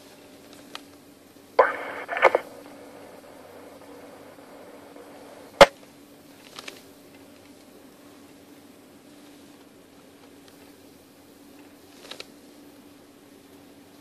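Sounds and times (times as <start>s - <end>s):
steady low hum: 0.0s - 14.0s
radio key clicks: 1.6s - 4.3s
garbled police radio transmission: 1.6s - 5.7s.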